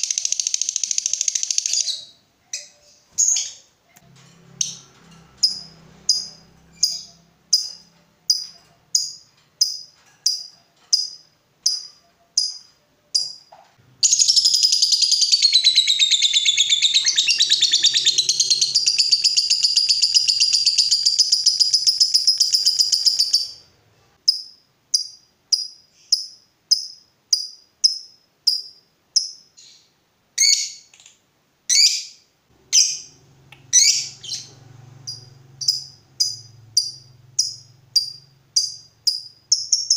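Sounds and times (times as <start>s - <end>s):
bird chirping: 0.0s - 39.9s
bird chattering trill: 5.4s - 13.3s, 14.0s - 23.6s, 32.7s - 39.9s.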